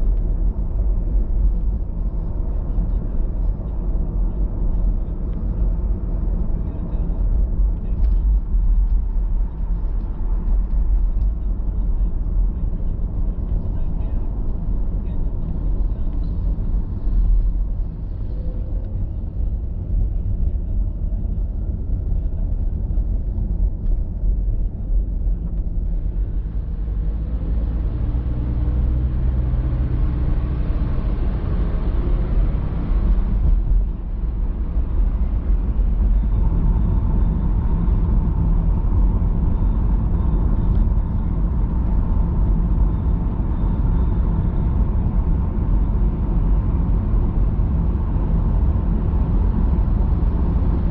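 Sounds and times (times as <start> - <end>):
car engine and tyre rumble: 0.0 - 50.9
road noise: 0.0 - 50.9.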